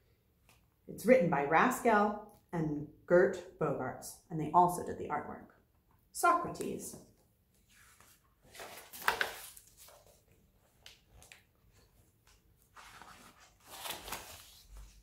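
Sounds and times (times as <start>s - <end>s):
page handling: 7.6s - 15.0s
paper pages turning: 7.6s - 15.0s.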